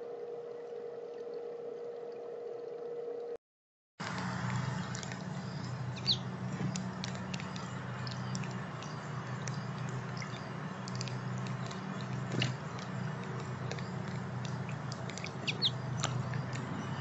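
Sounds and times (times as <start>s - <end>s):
bird chirp: 4.0s - 17.0s
fountain water bubbling and splashing: 4.0s - 17.0s
low hum: 4.0s - 17.0s
water dripping: 4.0s - 17.0s.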